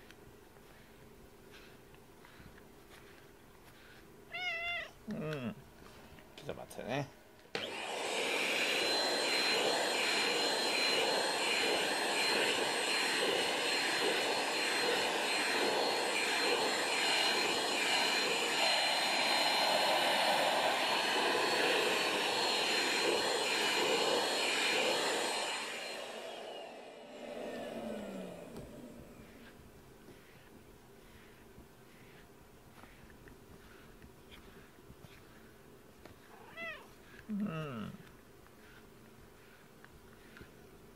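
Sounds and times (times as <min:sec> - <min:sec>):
vacuum cleaner running with high whine: 0:07.5 - 0:30.4.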